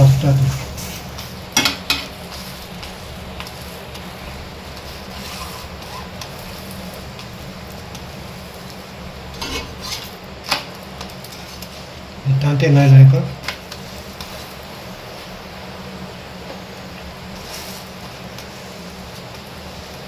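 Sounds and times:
flatbread sizzling on pan: 0.0 - 20.0
utensils clinking and scraping: 9.4 - 10.6.

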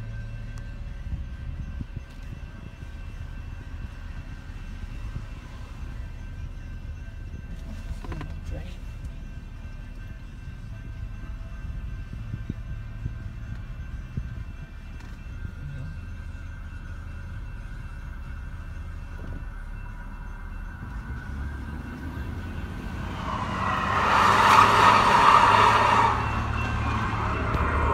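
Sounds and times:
train passing with rushing: 0.0 - 27.9
car engine idling: 11.8 - 27.9.

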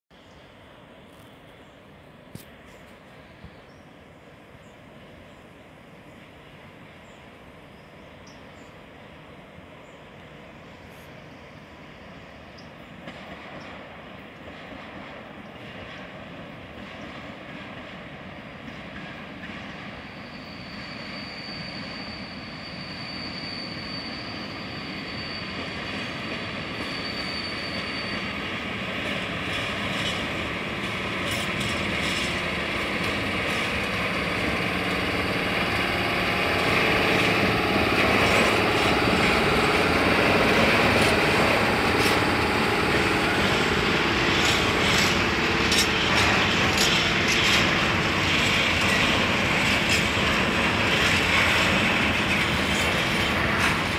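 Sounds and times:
wheels clattering over rail joints: 29.0 - 34.6, 36.6 - 53.9.

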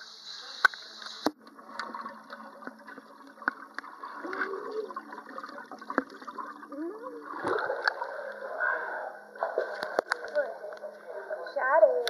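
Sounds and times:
muffled underwater water noise: 0.0 - 12.0
swimmer blowing bubbles: 2.8 - 8.3.

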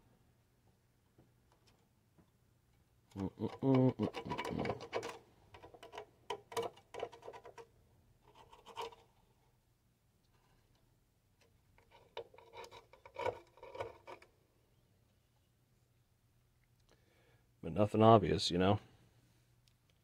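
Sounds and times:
metal probes scratching and clicking: 3.1 - 9.2, 11.4 - 14.3.

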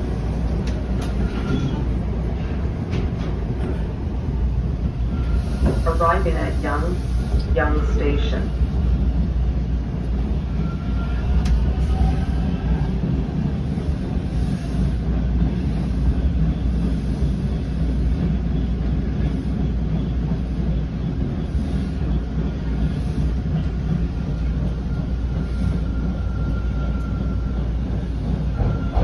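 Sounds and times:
train wheels rumbling on track: 0.0 - 29.0.

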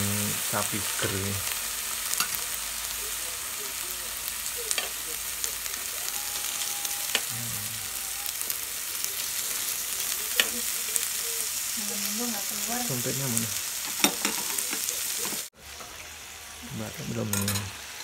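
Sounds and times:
meat sizzling on a grill pan: 0.0 - 18.0
metal tongs clicking on pan: 2.2 - 2.4, 10.4 - 10.6.

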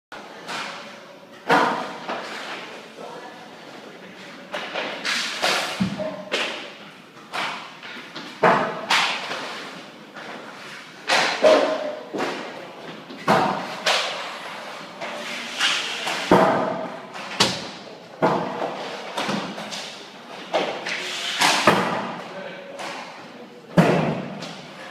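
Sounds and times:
pucks banging into boards: 0.4 - 2.7, 4.4 - 24.9
hockey sticks cracking on pucks: 4.5 - 12.6, 13.2 - 24.9.

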